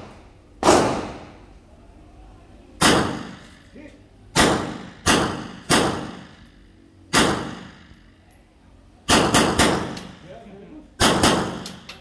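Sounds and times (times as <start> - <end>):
gunshots with echo: 0.0 - 1.4, 4.4 - 6.4, 9.1 - 10.2, 11.0 - 11.8.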